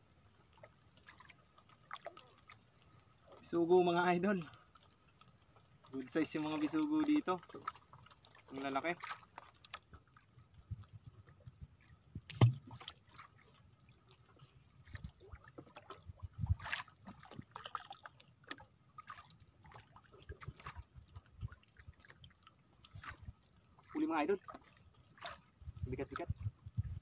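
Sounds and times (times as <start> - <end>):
water lapping and sloshing: 0.0 - 27.0
knocks on boat: 12.3 - 12.7.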